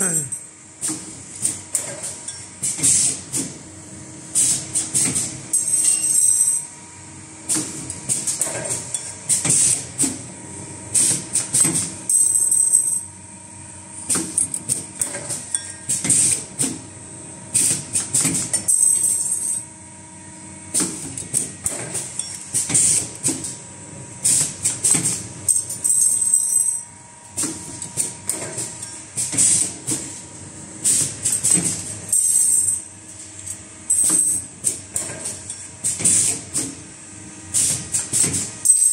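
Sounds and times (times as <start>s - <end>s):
steady machine hum: 0.0s - 38.9s
machine hiss and metallic clattering: 0.8s - 3.6s, 4.3s - 6.6s, 7.4s - 10.3s, 10.9s - 12.9s, 14.1s - 16.9s, 17.5s - 19.5s, 20.7s - 23.6s, 24.2s - 26.5s, 27.3s - 36.8s, 37.5s - 38.9s.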